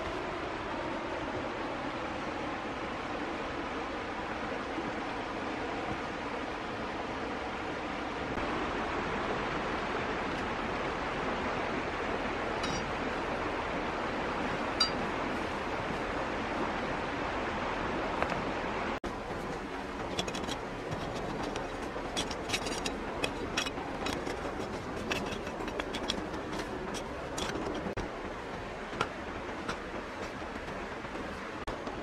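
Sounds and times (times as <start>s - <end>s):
metal blade scraping stony soil: 20.2s - 28.0s.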